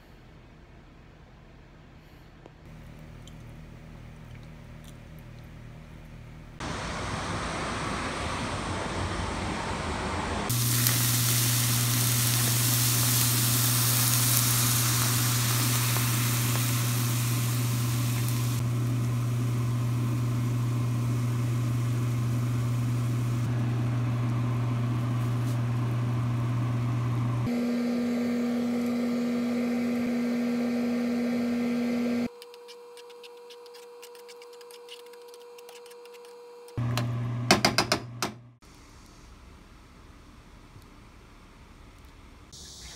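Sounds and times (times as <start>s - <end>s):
low electrical hum: 0.0s - 7.6s, 10.5s - 27.5s
sauce sizzling in a frying pan: 10.5s - 23.6s.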